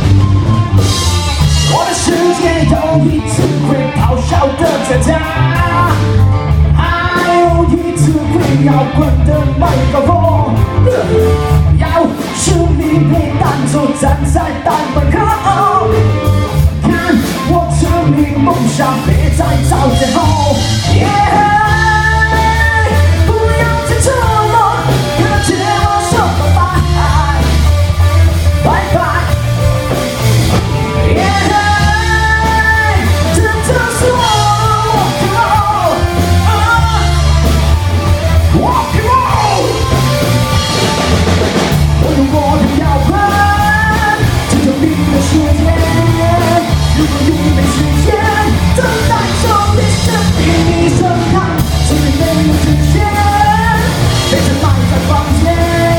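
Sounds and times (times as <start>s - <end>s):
person singing: 0.0s - 55.9s
rock band playing live: 0.0s - 55.9s.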